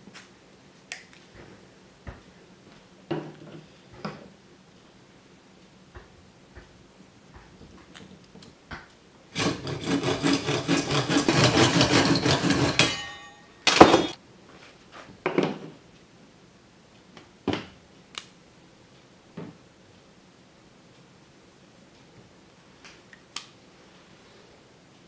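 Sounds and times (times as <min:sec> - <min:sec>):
hand saw cutting plastic pipe: 0:09.3 - 0:14.2.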